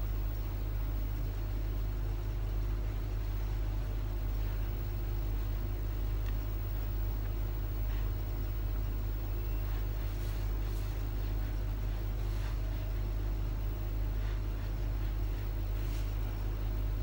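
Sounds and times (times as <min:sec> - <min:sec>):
low background rumble: 0:00.0 - 0:17.0
fingers rubbing skin: 0:04.3 - 0:17.0.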